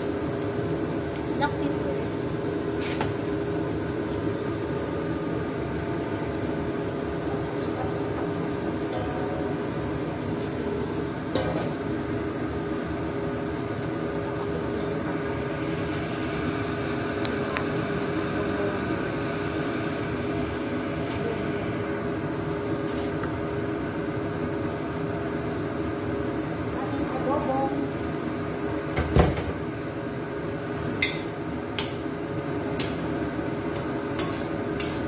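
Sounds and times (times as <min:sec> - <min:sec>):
gas stove burner hum: 0:00.0 - 0:35.0.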